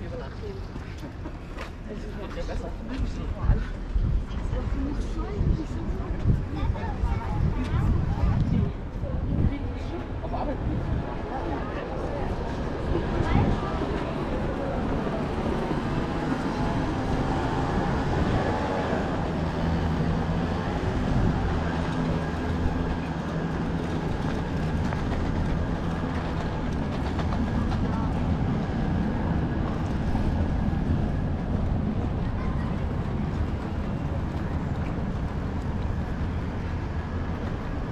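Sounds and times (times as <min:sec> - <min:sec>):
people talking: 0:01.8 - 0:17.3, 0:27.0 - 0:28.7, 0:32.0 - 0:35.2
low vehicle rumble: 0:02.6 - 0:37.9.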